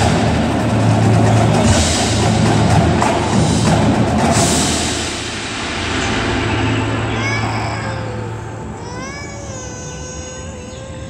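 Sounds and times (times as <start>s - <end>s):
marching drums: 0.0s - 7.6s.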